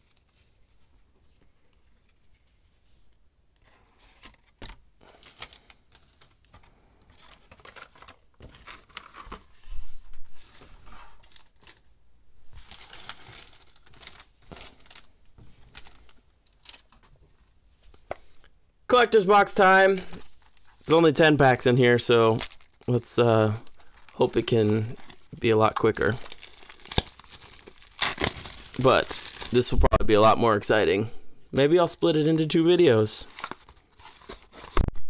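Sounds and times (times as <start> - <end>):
cards rustling and tapping: 4.1 - 9.5
foil wrappers crinkling: 5.0 - 9.5, 12.5 - 17.2, 20.0 - 29.8, 33.2 - 34.9.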